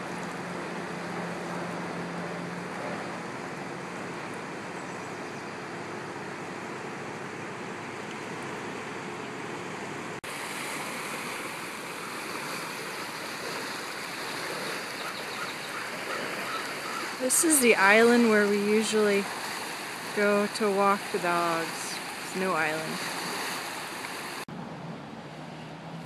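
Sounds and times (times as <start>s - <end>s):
floodwater rushing: 0.0s - 26.0s
rapids churning: 5.5s - 25.4s.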